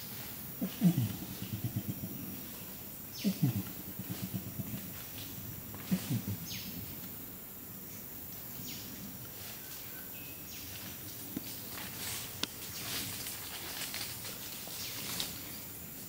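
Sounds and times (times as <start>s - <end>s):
rainforest background: 0.0s - 16.0s
orangutan low pulsing call: 0.6s - 7.0s.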